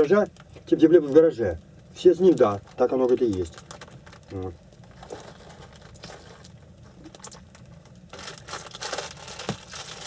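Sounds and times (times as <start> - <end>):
plastic wrapper crinkling: 2.2 - 10.0.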